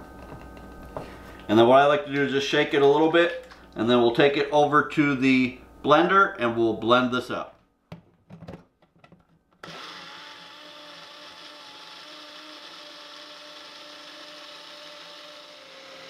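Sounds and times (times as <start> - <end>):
blender motor whining: 9.6 - 16.0.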